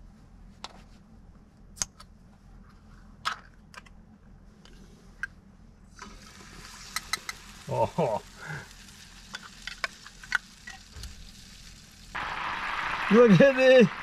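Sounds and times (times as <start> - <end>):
cream sizzling in a frying pan: 6.0 - 14.0.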